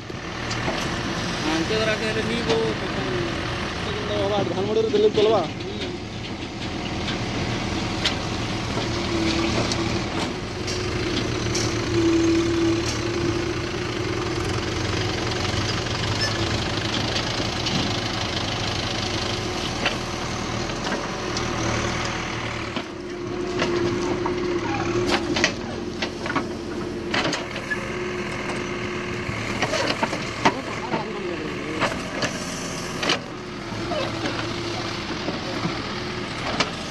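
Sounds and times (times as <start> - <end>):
diesel engine running under load: 0.0 - 36.9
sharp knocks and clatter: 29.5 - 31.1.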